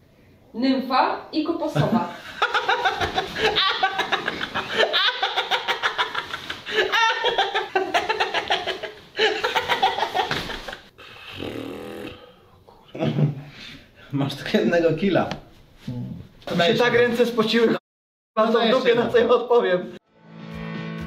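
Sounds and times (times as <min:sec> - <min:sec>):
hearty laughter: 0:02.2 - 0:10.9.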